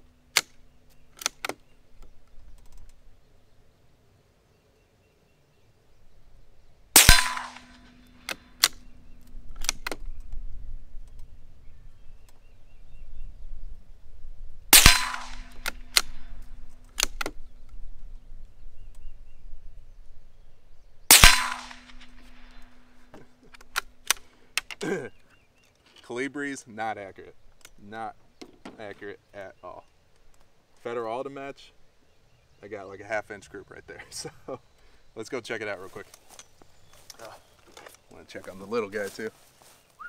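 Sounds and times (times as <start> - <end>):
rifle bolt clicks: 0.3 - 3.0, 7.0 - 10.4, 14.8 - 17.8, 21.1 - 24.8
suppressed rifle shots: 6.9 - 10.3, 14.7 - 17.7, 21.1 - 24.3.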